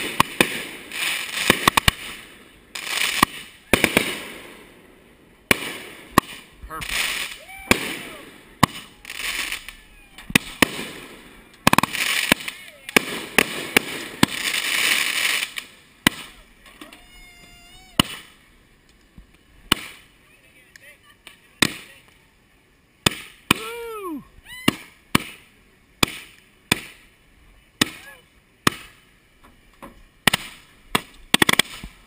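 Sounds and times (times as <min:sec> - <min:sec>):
fireworks bangs: 0:00.0 - 0:22.2, 0:23.0 - 0:27.2, 0:27.8 - 0:29.1, 0:29.8 - 0:32.0
fireworks spraying sparks hiss: 0:00.0 - 0:22.3, 0:30.2 - 0:32.0.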